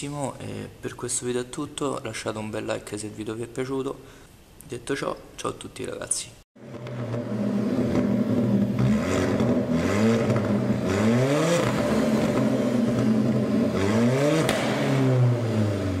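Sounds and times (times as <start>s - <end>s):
car engine revving: 6.6s - 16.0s.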